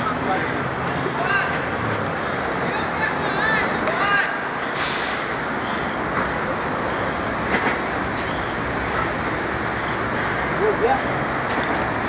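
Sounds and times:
road traffic noise: 0.0 - 12.0
brief high hiss: 4.1 - 10.4.

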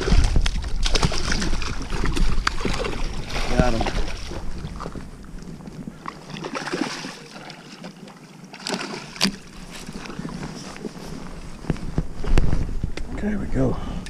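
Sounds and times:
fish splashing in water: 0.0 - 5.1, 6.0 - 10.4.

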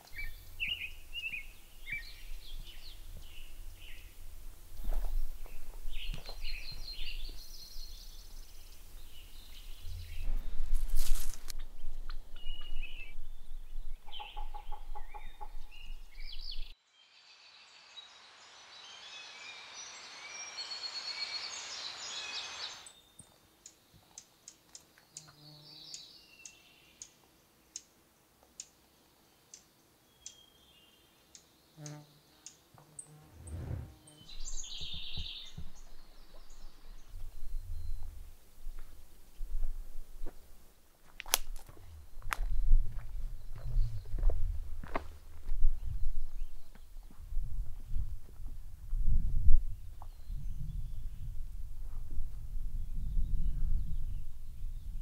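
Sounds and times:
birds chirping and singing: 0.0 - 4.2, 5.4 - 16.7
low rumble: 33.3 - 34.0.

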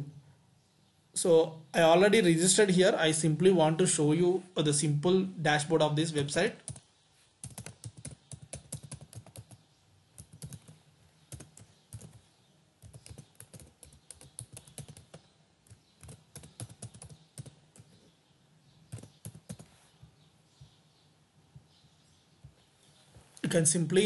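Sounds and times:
typing on computer keyboard: 7.4 - 9.6, 10.2 - 12.2, 12.8 - 17.9, 18.9 - 19.7.

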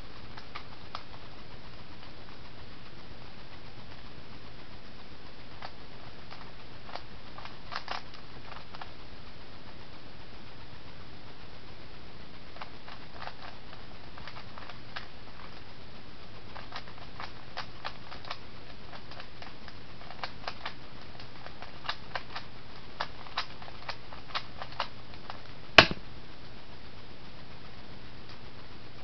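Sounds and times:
steady hiss: 0.0 - 29.0
sharp plastic clack: 25.8 - 26.0.

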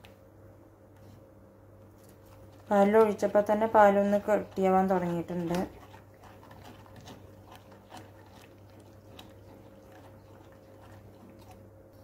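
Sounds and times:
spoon stirring in saucepan: 2.0 - 12.0.

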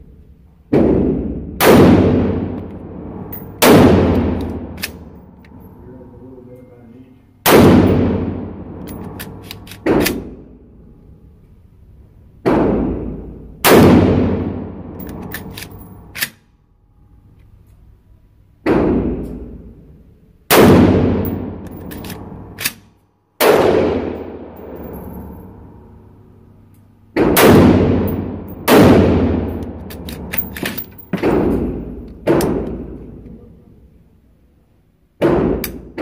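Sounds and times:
rifle shots echoing: 0.7 - 5.5, 7.4 - 10.4, 12.5 - 16.2, 20.5 - 22.7, 23.4 - 25.6, 27.2 - 33.2
light metallic clinks: 24.6 - 25.4.

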